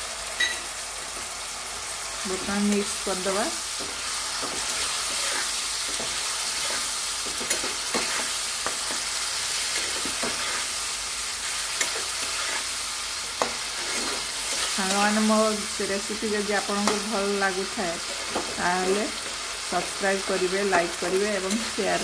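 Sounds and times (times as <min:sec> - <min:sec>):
vegetables sizzling in a wok: 0:00.0 - 0:22.0
spatula tapping and scraping pan: 0:03.8 - 0:09.0.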